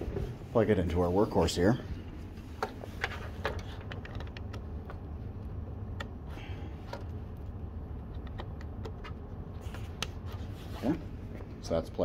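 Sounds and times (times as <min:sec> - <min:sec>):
steady low hum: 0:00.0 - 0:12.0
small clicks and taps: 0:02.6 - 0:05.1, 0:06.9 - 0:09.2.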